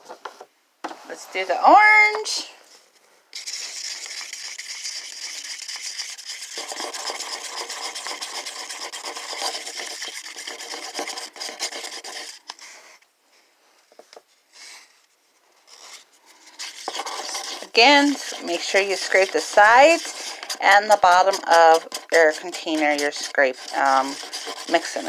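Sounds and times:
stick scrapes and taps on cup: 0:03.4 - 0:12.6, 0:16.5 - 0:25.0
stick stirring paint in paper cup: 0:03.4 - 0:13.0, 0:15.6 - 0:25.0.

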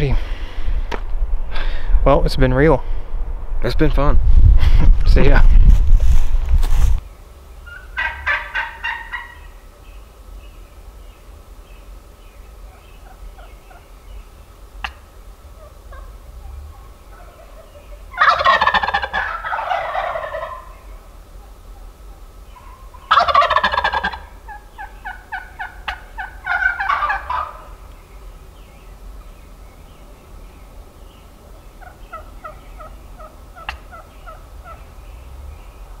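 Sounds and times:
turkey gobbling: 0:07.6 - 0:09.7, 0:12.6 - 0:28.0, 0:28.6 - 0:35.7
faint turkey calls: 0:07.6 - 0:36.0.

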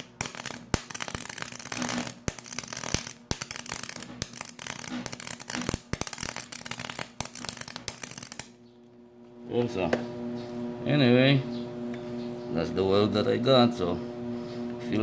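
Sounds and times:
welding arc crackling: 0:00.0 - 0:09.0
steady hum: 0:00.0 - 0:15.0.

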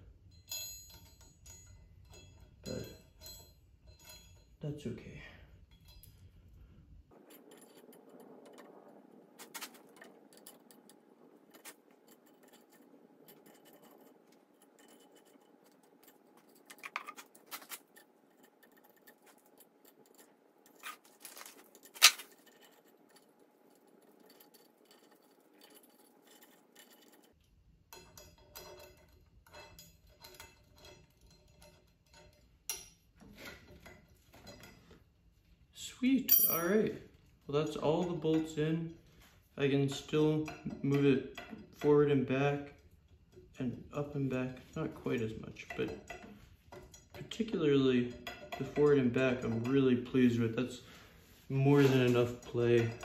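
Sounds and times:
metallic clinks of steel bolts: 0:00.2 - 0:04.6, 0:05.6 - 0:06.4, 0:36.3 - 0:36.9.

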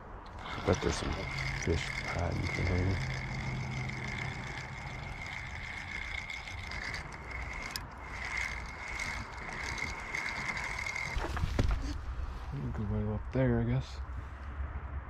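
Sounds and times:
fishing reel whirring: 0:00.0 - 0:12.0
sharp reel click: 0:00.3 - 0:11.6.

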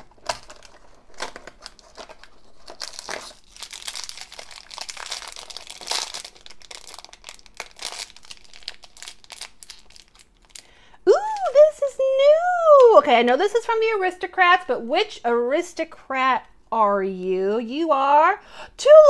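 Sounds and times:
plastic bag crinkling: 0:00.0 - 0:10.8.

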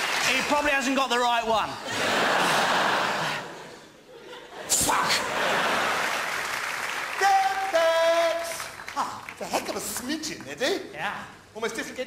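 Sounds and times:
audience applauding: 0:00.0 - 0:00.9, 0:05.2 - 0:10.6
audience laughing: 0:01.7 - 0:06.6.

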